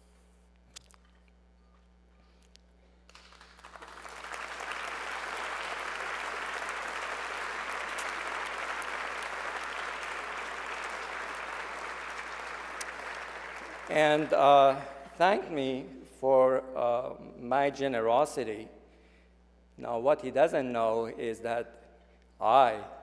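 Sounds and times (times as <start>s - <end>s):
audience applause: 3.1s - 14.8s.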